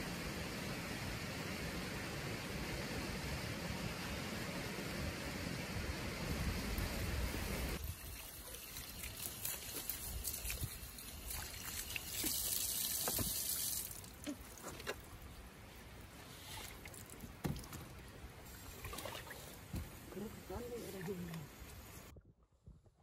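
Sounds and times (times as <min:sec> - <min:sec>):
wind hiss: 0:00.0 - 0:14.2
water trickling and dripping: 0:07.8 - 0:22.1.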